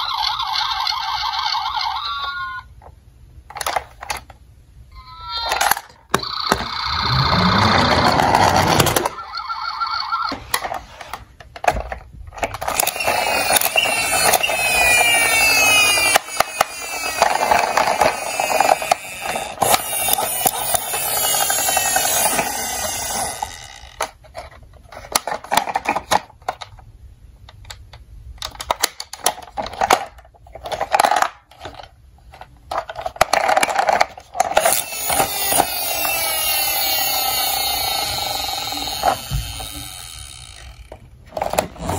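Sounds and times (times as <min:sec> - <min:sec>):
toy siren sounds: 0:00.0 - 0:02.7, 0:04.9 - 0:10.6, 0:12.8 - 0:24.0, 0:34.6 - 0:40.9
plastic toys clicking and rattling: 0:03.5 - 0:04.4, 0:05.1 - 0:09.3, 0:11.4 - 0:26.9, 0:27.5 - 0:41.9.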